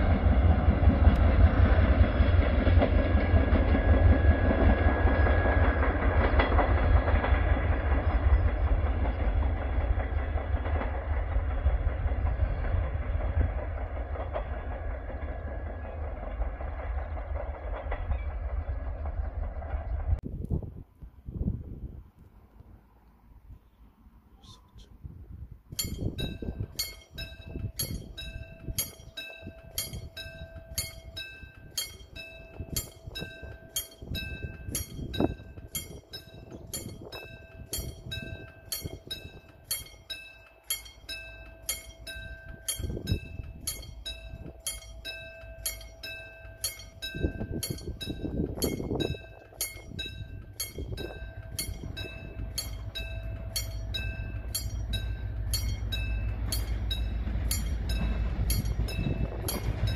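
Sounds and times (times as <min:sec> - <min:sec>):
diesel locomotive rumble: 0:00.0 - 0:59.9
level crossing warning bell ringing: 0:25.8 - 0:59.9
steady warning tone: 0:25.8 - 0:59.9.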